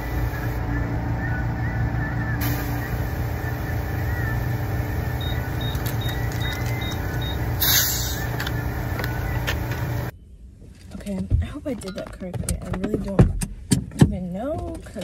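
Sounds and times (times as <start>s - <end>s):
air compressor running: 0.0s - 0.6s, 2.4s - 10.1s
short loud air hiss: 2.4s - 3.2s, 7.6s - 8.3s.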